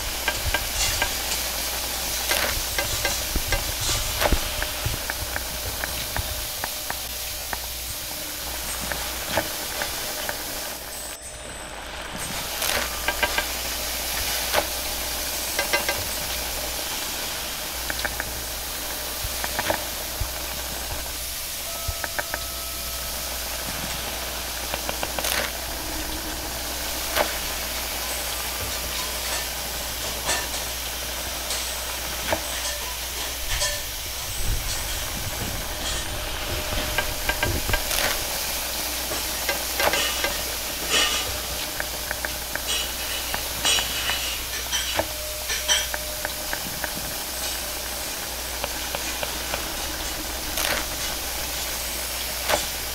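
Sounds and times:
wok sizzling: 0.0 - 52.9.

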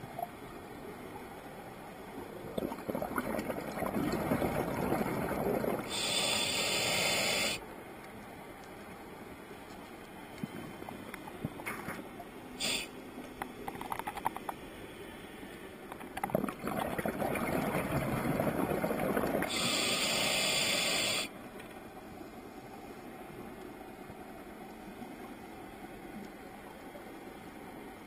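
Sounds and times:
exhaled bubbles rumbling: 2.2 - 5.9, 16.0 - 19.5
regulator inhale hiss: 5.9 - 7.6, 12.6 - 13.0, 19.5 - 21.4
faint clicks: 8.0 - 9.0.

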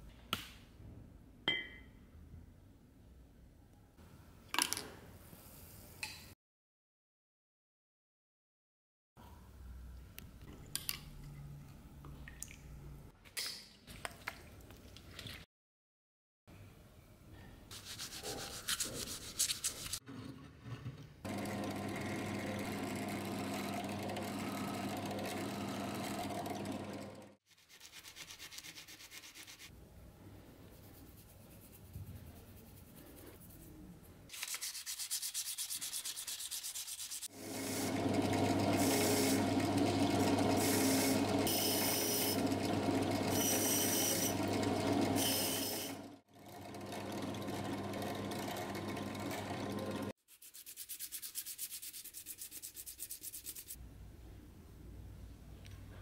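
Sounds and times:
brush scrubbing: 17.7 - 20.0, 30.7 - 37.3, 50.2 - 53.8
rubbing on brass spoon: 17.7 - 20.0, 34.4 - 37.3, 50.3 - 53.8
drill press motor running: 21.3 - 27.4, 37.3 - 50.1.

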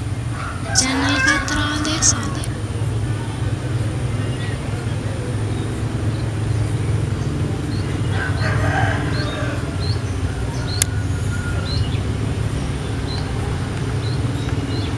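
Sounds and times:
rooster crowing: 8.2 - 9.8.

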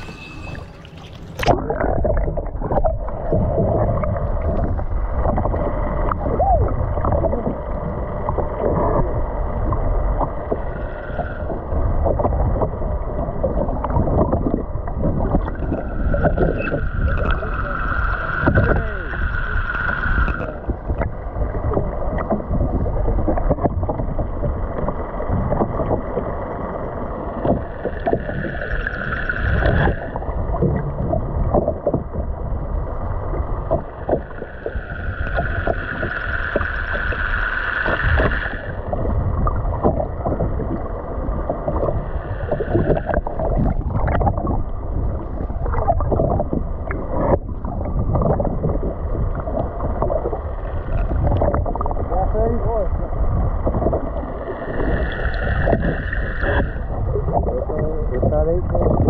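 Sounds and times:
water sloshing around a boat: 0.0 - 5.5
high steady whine: 0.0 - 59.0
wind: 0.0 - 59.0.

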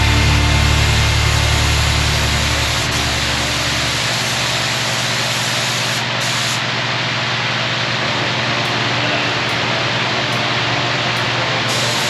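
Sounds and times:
low hum: 0.0 - 12.0
spray gun hissing: 0.8 - 6.7, 11.7 - 12.0.

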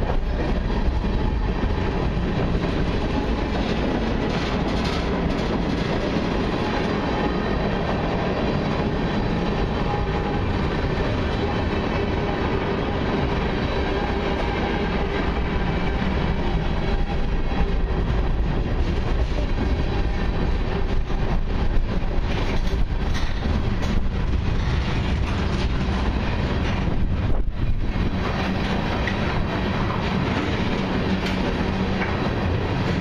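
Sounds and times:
train wheels on rails: 0.0 - 33.0.

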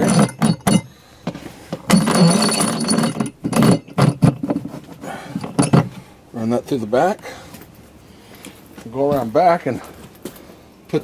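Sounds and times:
metal rod scraping: 0.0 - 0.9, 1.8 - 6.0
metal clinks: 0.0 - 1.0, 1.8 - 4.4, 5.4 - 6.0.

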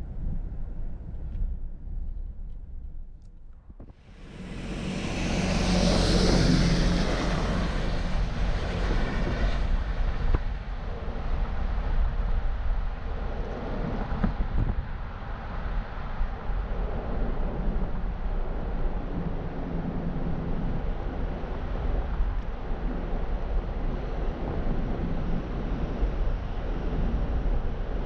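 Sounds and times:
low rumble of street traffic: 0.0 - 28.0
car driving past: 4.0 - 10.0.

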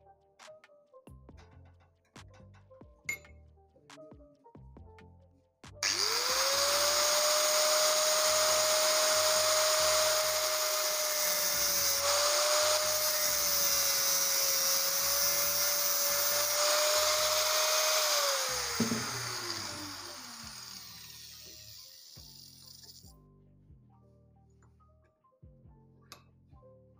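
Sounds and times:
low background music: 0.0 - 26.9
angle grinder cutting metal: 5.8 - 23.1.

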